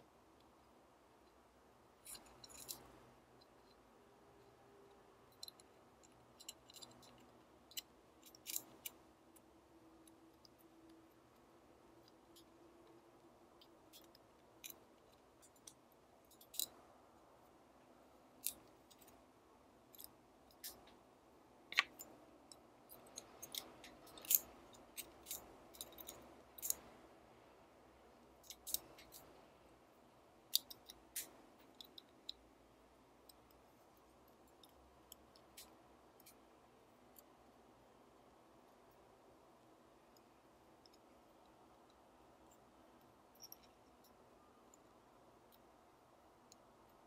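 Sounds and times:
faint room hiss: 0.0s - 47.0s
small metal parts clicking: 2.0s - 3.8s, 4.4s - 16.9s, 18.4s - 19.2s, 19.9s - 21.0s, 21.7s - 27.0s, 28.4s - 29.4s, 30.5s - 32.5s, 34.4s - 36.4s, 43.3s - 45.7s.

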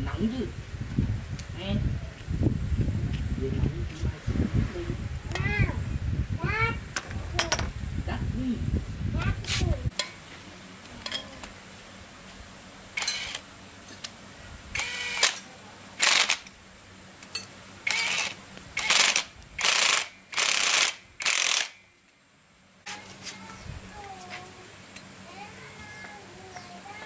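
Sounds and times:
cordless drill bursts: 13.0s - 13.4s, 14.8s - 15.4s, 16.0s - 16.4s, 17.8s - 21.8s.

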